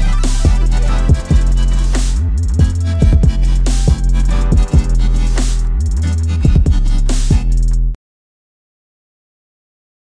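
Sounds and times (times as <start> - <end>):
dubstep electronic dance music: 0.0 - 7.9.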